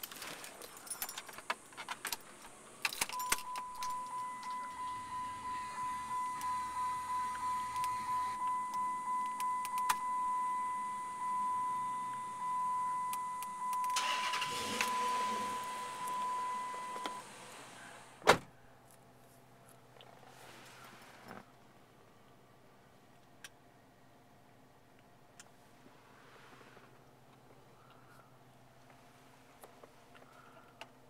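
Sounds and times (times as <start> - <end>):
dashboard warning chime beeping: 3.1 - 18.0.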